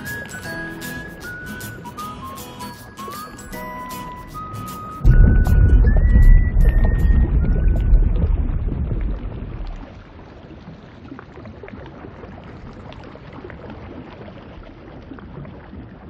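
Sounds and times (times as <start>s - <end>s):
underwater bubbling: 3.4s - 16.0s
deep rumble: 5.0s - 10.4s.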